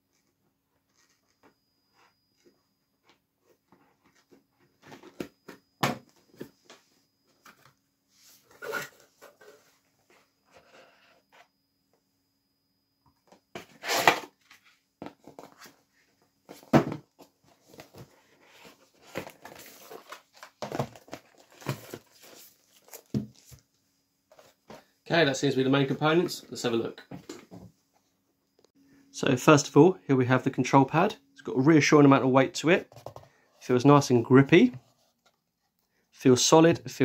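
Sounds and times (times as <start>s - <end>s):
cardboard packaging rustling: 16.5s - 23.7s.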